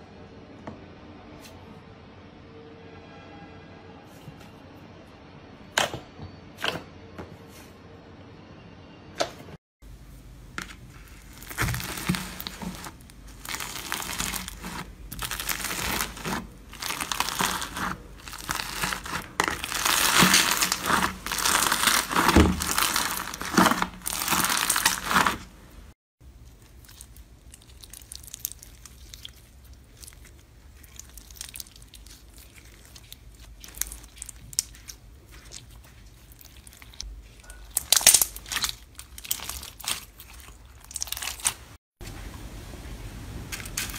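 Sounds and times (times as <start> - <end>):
hands squishing crunchy slime: 10.6 - 41.8, 43.5 - 43.9.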